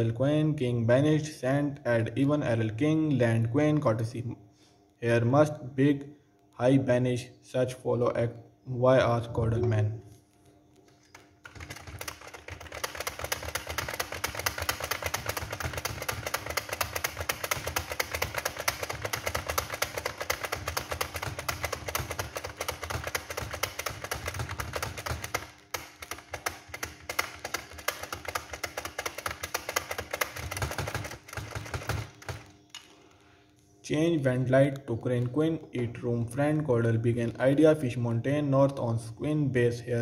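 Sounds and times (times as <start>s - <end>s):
computer keyboard typing: 10.7s - 33.2s.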